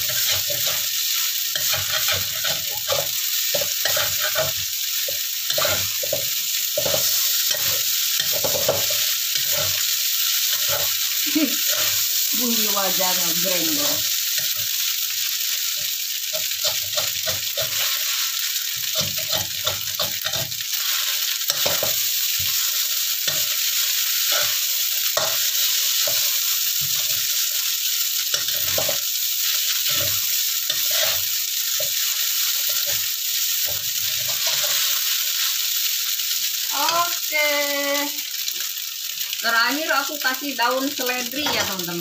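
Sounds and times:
metal spatula scraping a wok: 0.0 - 4.6, 5.5 - 9.9, 10.5 - 11.0, 16.3 - 27.4, 28.3 - 33.0, 33.6 - 35.1
food sizzling in a wok: 0.0 - 42.0.

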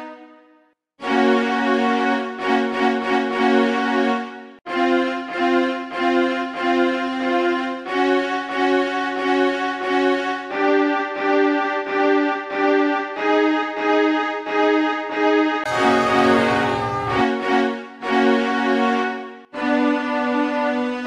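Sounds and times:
pulsing bowed string music: 15.7 - 17.8.

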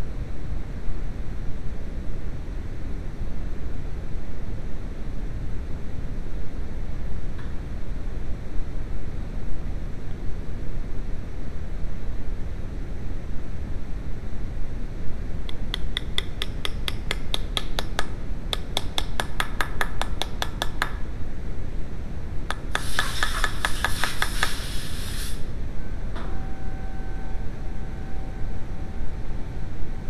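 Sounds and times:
faint steady hum: 0.0 - 30.0
low background rumble: 0.0 - 30.0
hammer tapping on metal: 15.5 - 21.0, 22.5 - 24.6.

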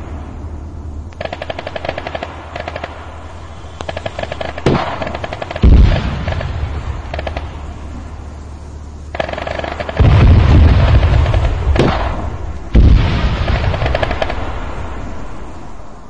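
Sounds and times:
heavy booms with rumble: 0.0 - 16.0
sharp crack: 1.0 - 8.3, 9.0 - 15.8
rapid gunfire: 1.2 - 8.1, 9.1 - 14.6.

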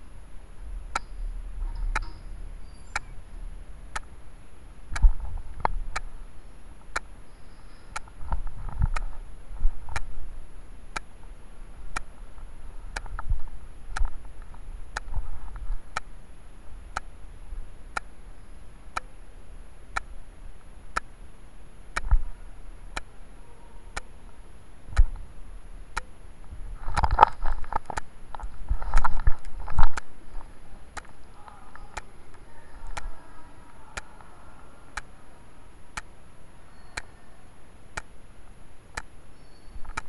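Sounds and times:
muffled low thumps: 0.0 - 7.0
sharp evenly spaced ticks: 0.0 - 10.1, 10.8 - 13.3, 13.9 - 26.2, 26.8 - 37.2, 37.8 - 40.0
faint high whine: 0.0 - 40.0.

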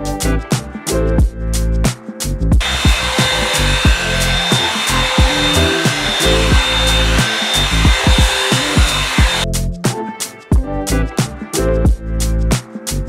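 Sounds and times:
background music with steady beat: 0.0 - 13.0
hair dryer brush running: 2.6 - 9.4.

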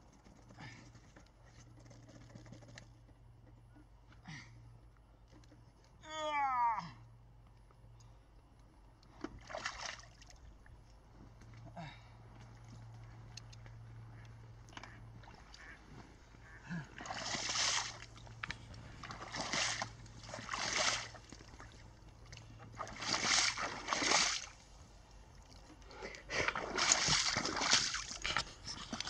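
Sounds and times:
wading through water and mud: 8.4 - 29.0.

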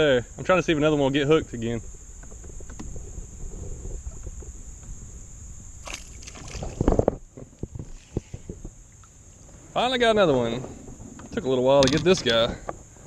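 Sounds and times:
high insect drone: 0.0 - 13.0
wind rumble on microphone: 0.0 - 13.0
water sloshing around kayak: 0.8 - 9.8
knocks and splashes: 5.8 - 8.8.

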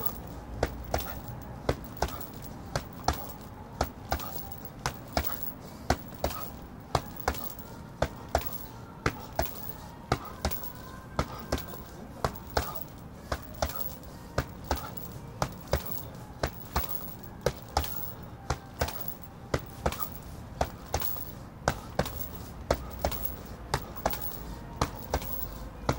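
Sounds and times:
gloves punching a heavy bag: 0.0 - 25.9.

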